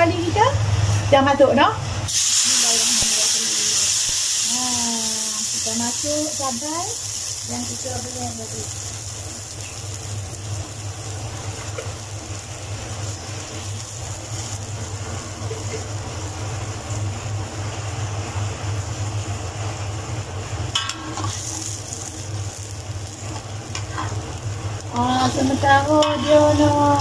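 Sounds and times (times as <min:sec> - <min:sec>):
paste sizzling in oil: 0:02.1 - 0:27.0
metal spatula scraping and stirring: 0:20.8 - 0:21.6, 0:25.3 - 0:27.0.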